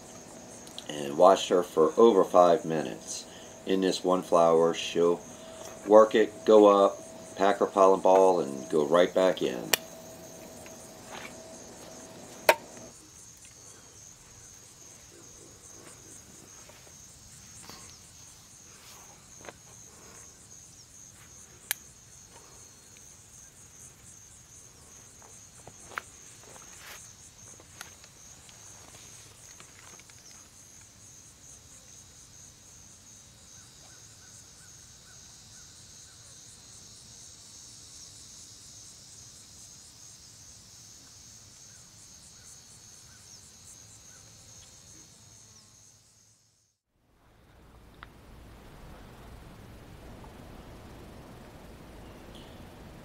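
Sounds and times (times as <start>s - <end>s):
insect chirring: 0.0s - 46.8s, 47.4s - 53.0s
sharp clicks: 5.3s - 13.6s.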